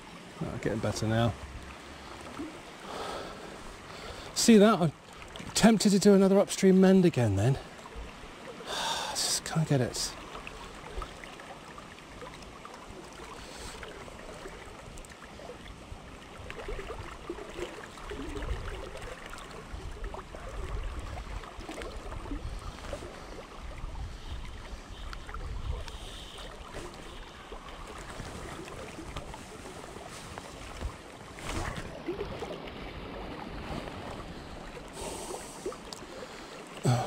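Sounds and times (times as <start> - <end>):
river water flowing and lapping: 0.0 - 37.0
wind rumbling on microphone: 18.0 - 34.6.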